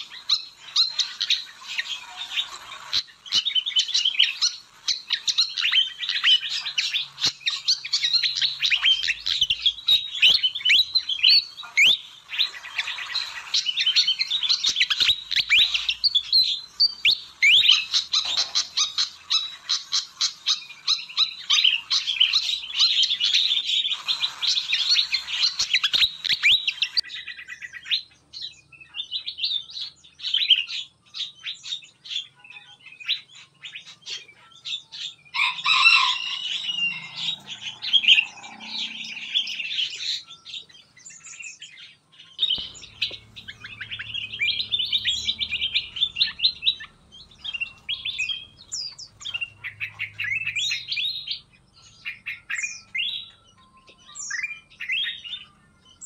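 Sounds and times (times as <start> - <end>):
songbirds chirping and trilling: 0.0 - 56.0.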